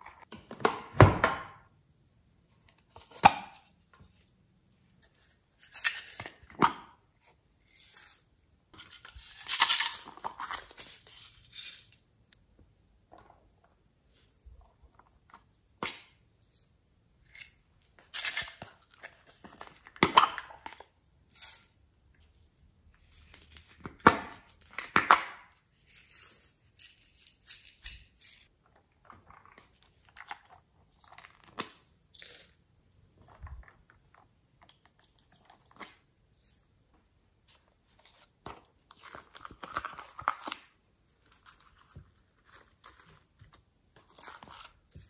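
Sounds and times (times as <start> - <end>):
crinkly rustles: 41.1 - 45.0.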